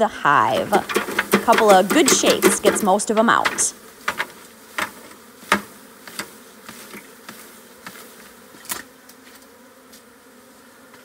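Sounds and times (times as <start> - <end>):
bees buzzing: 0.0 - 11.0
package knocking on hive box: 0.6 - 6.4.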